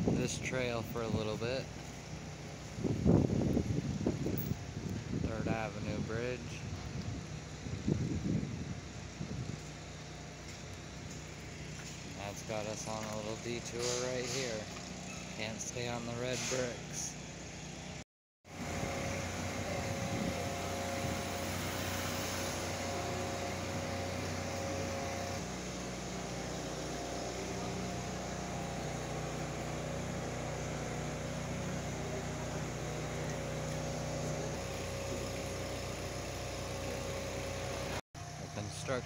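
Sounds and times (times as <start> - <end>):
road noise: 0.0 - 39.0
car engine hum: 18.5 - 39.0.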